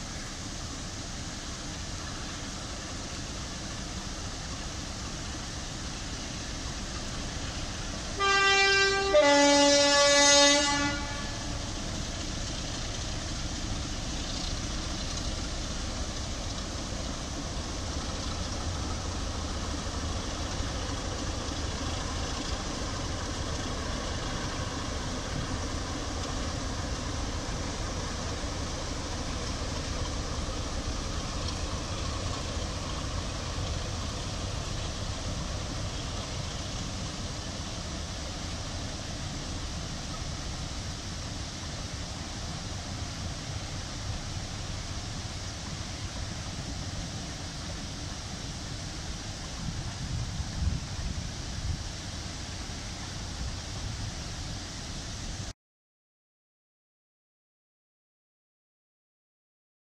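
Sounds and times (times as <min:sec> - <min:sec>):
two-tone locomotive horn: 0:08.1 - 0:11.7
diesel engine running: 0:10.7 - 0:51.5.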